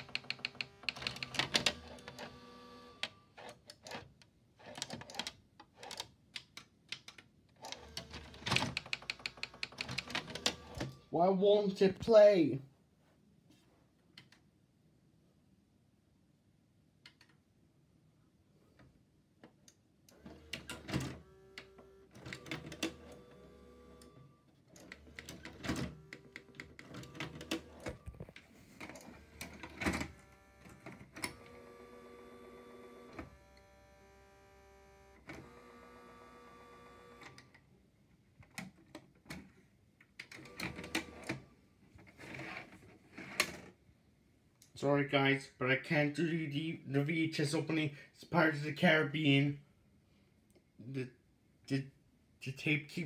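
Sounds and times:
tape mechanism clicks and clunks: 0.0 - 11.1, 19.4 - 34.0, 34.8 - 37.7, 38.4 - 43.7.

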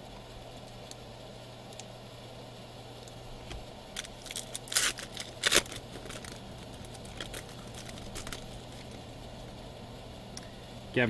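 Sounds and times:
foil pack tearing: 3.9 - 9.0
wrapper crinkling: 3.9 - 9.0.

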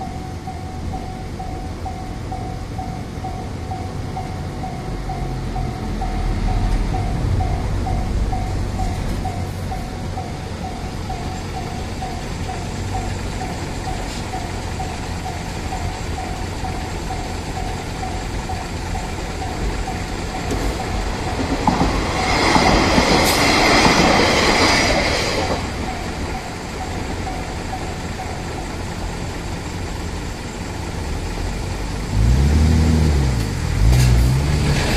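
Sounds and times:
level-crossing warning bell: 0.0 - 31.9
train wheels clattering on rails: 4.2 - 31.0, 33.3 - 34.9
car engine revving: 32.0 - 34.9.

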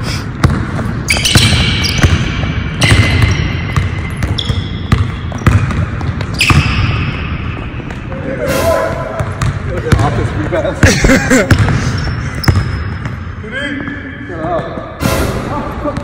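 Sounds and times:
sneakers squeaking: 0.1 - 15.1
basketball bouncing on wooden floor: 0.4 - 8.0, 9.2 - 10.2, 12.4 - 13.2.

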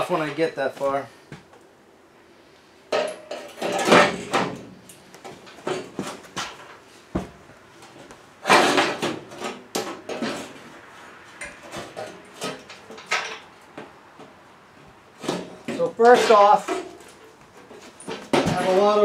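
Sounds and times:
metal tools clanking: 11.6 - 13.5, 15.3 - 19.0.

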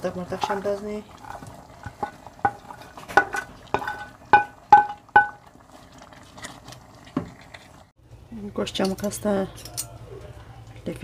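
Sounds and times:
faint simmering: 0.0 - 11.0
clinks against metal pot: 0.4 - 5.4.

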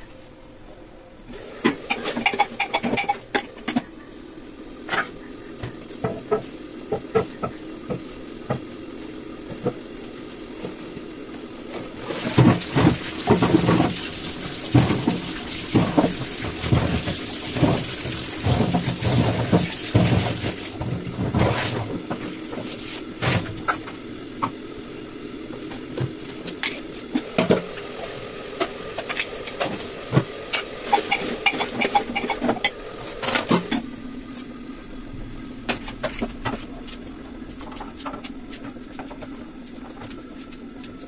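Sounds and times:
potatoes knocking and splashing: 12.0 - 22.0.

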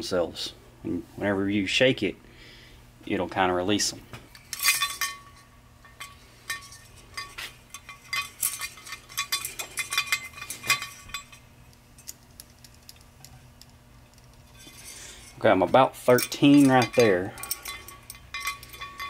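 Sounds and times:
metallic gear clinks and ticks: 5.8 - 11.4, 12.0 - 19.0.

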